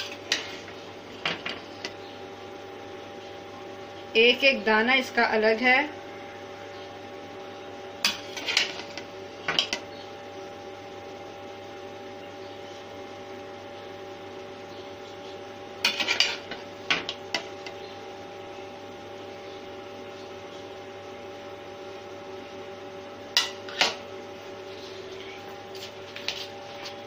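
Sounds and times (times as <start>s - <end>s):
metal spoon scraping a plate: 8.1s - 8.9s, 15.8s - 16.5s.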